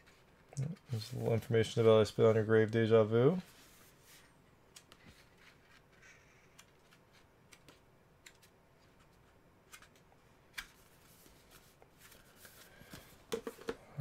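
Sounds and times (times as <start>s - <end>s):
booklet pages turning: 3.3s - 13.8s.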